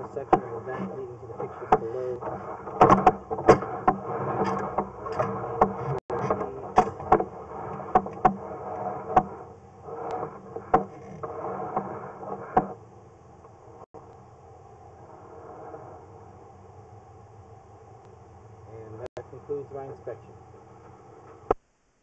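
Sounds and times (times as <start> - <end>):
cable scraping rustle: 0.0 - 13.9.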